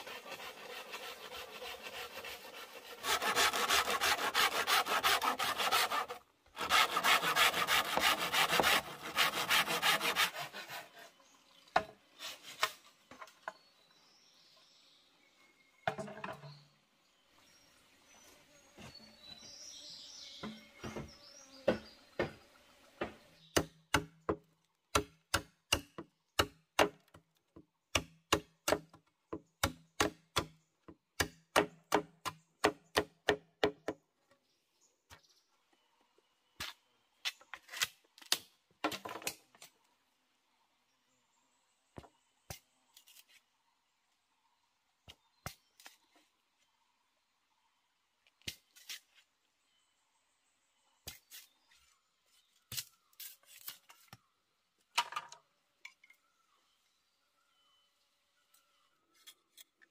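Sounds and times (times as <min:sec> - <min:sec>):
tool striking bamboo: 0:23.0 - 0:27.2, 0:27.9 - 0:29.0, 0:29.6 - 0:30.6.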